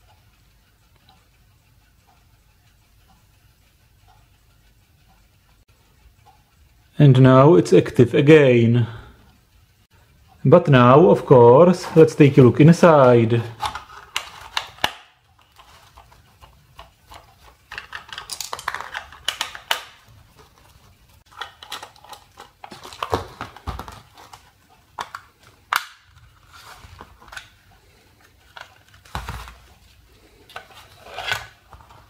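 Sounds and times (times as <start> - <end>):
screwdriver clicking on plastic: 13.6 - 20.1, 21.3 - 26.0.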